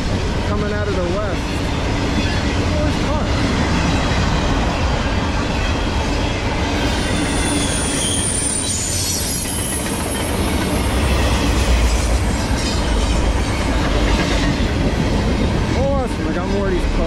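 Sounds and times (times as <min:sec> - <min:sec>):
train wheels rumbling on rails: 0:00.0 - 0:17.0
high wheel squeal: 0:04.0 - 0:13.8.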